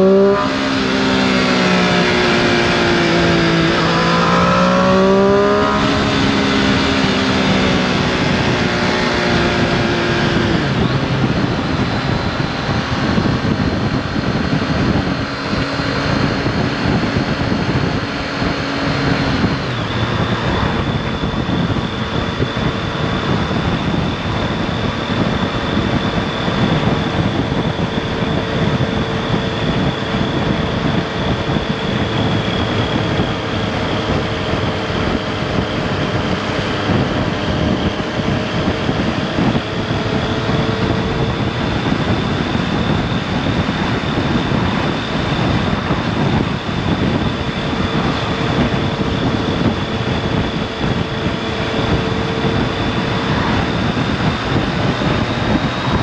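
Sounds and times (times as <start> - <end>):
motorcycle engine cruising: 0.0 - 56.0
wind rushing over microphone: 0.0 - 56.0.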